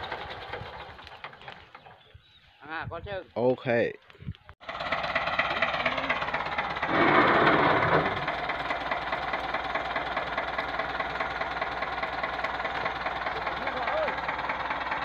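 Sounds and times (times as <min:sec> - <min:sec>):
tractor diesel engine clattering: 0:00.0 - 0:02.1, 0:04.6 - 0:15.0.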